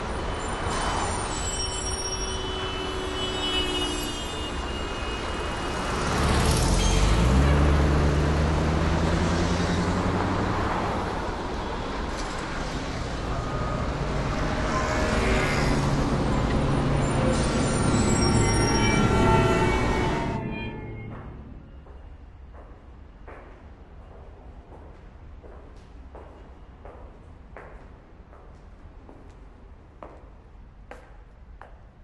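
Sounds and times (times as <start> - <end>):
street traffic noise: 0.0 - 32.0
heavy vehicle engine passing: 5.8 - 12.0.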